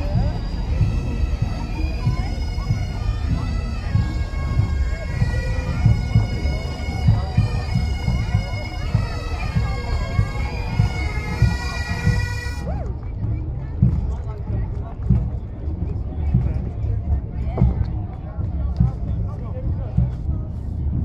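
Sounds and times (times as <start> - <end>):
bagpipes playing: 0.0 - 12.7
marching drums beating: 0.0 - 21.0.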